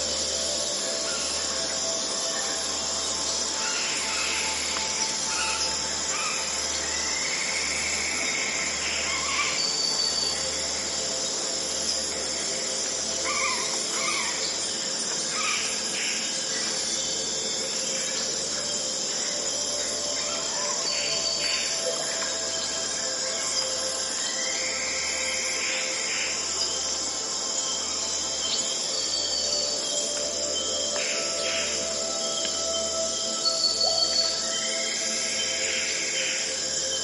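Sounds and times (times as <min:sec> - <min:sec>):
insects chirping: 0:00.0 - 0:37.0
synthesized drone: 0:00.0 - 0:37.0.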